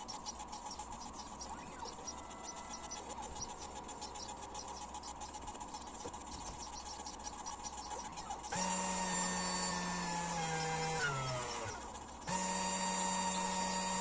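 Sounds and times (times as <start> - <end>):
cnc mill motor whine: 8.5 - 14.0.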